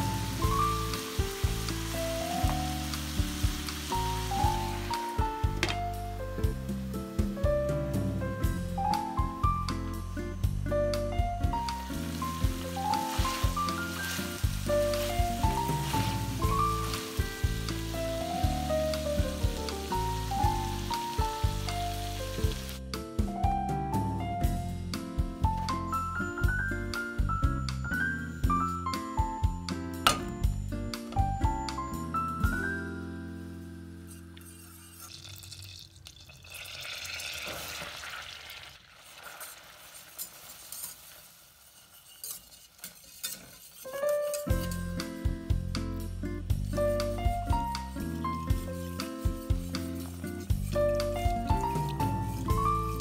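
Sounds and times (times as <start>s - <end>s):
food sizzling in frying pan: 0.0s - 7.4s, 10.4s - 22.8s, 32.6s - 45.7s, 46.5s - 53.0s
background music: 0.0s - 34.5s, 44.0s - 53.0s
whisk wires clicking on pot: 39.1s - 44.7s
whisk stirring in pot: 39.1s - 45.0s, 46.6s - 53.0s.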